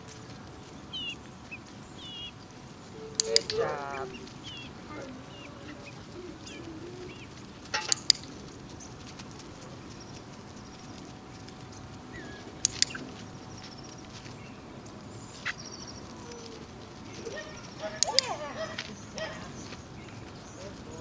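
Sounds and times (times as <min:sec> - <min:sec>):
steady background hiss: 0:00.0 - 0:21.0
sharp clicks: 0:03.1 - 0:03.6, 0:07.8 - 0:08.4, 0:12.6 - 0:13.2.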